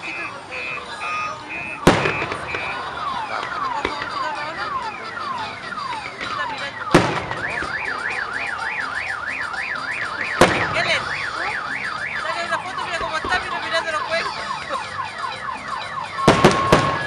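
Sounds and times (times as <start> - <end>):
car alarm warbling and chirping: 0.0 - 17.0
firework bangs: 1.6 - 8.6, 10.0 - 13.6, 16.2 - 17.0.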